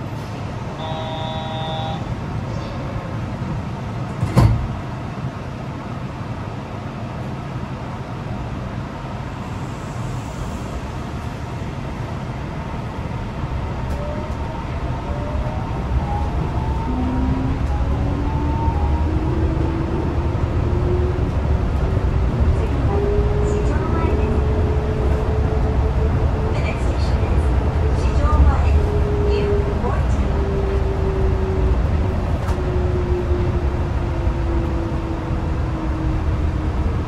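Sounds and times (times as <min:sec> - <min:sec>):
train humming: 0:00.0 - 0:37.0.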